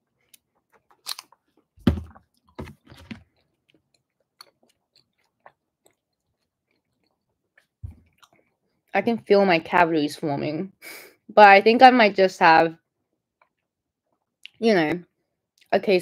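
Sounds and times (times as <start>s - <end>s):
person chewing crunchy snack: 0.1s - 8.6s.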